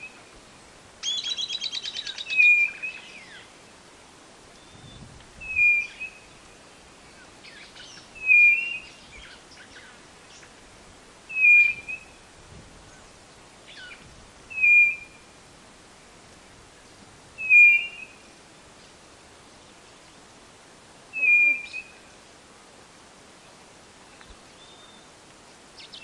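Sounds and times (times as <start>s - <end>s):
bird whistled call: 1.0s - 3.4s, 4.6s - 6.3s, 7.5s - 9.9s, 11.3s - 12.2s, 13.7s - 15.2s, 17.4s - 18.2s, 21.1s - 22.0s
faint bird chirps: 1.0s - 3.5s, 4.6s - 10.6s, 16.8s - 18.9s, 21.1s - 22.1s, 24.1s - 26.0s.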